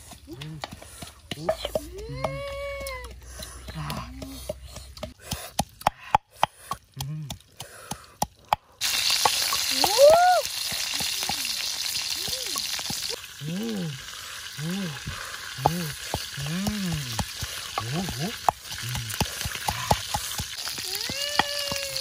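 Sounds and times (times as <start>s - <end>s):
birds sizzling in a wok: 8.8s - 22.0s.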